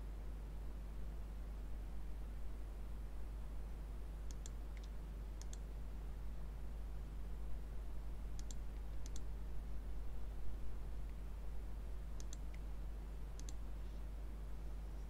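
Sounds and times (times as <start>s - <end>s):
steady low hum: 0.0s - 15.0s
computer mouse button clicking: 4.3s - 5.6s, 8.4s - 9.2s, 12.2s - 12.6s, 13.4s - 13.6s.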